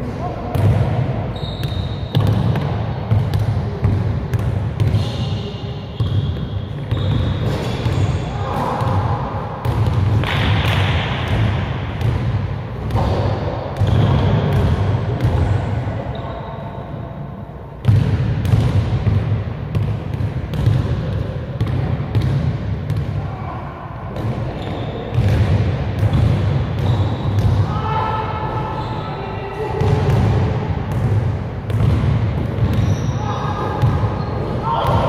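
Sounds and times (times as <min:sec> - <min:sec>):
basketball bouncing on gym floor: 0:00.5 - 0:01.0, 0:01.6 - 0:05.1, 0:06.0 - 0:15.5, 0:17.8 - 0:23.2, 0:24.2 - 0:27.6, 0:29.8 - 0:33.1, 0:33.7 - 0:35.0.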